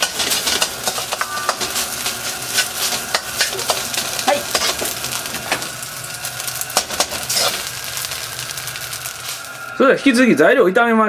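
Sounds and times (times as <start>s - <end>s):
metal ladle scraping wok: 0.0s - 9.6s
rice sizzling in wok: 0.0s - 10.6s.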